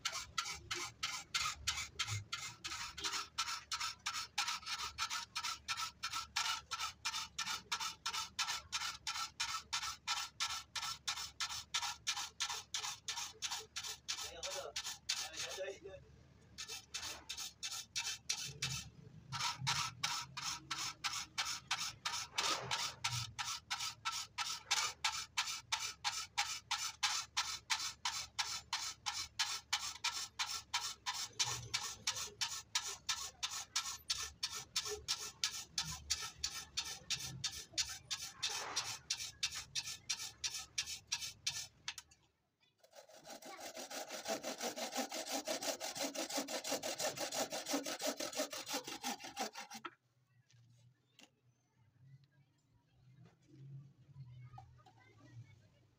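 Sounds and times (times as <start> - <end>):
file rasping on saw teeth: 0.0 - 15.7, 16.6 - 42.0, 42.8 - 49.9
hand saw cutting wood: 0.0 - 15.7, 16.6 - 42.0, 42.8 - 49.9.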